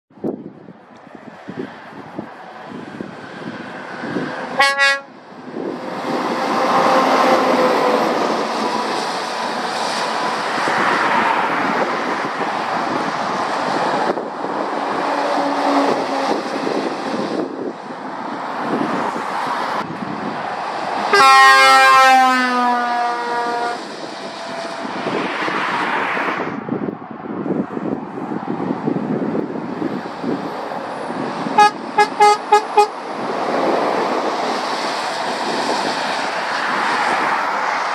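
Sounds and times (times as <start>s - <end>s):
heavy lorries driving past: 1.1s - 26.0s
lorry horn: 4.6s - 5.1s, 21.1s - 23.8s, 31.6s - 32.9s.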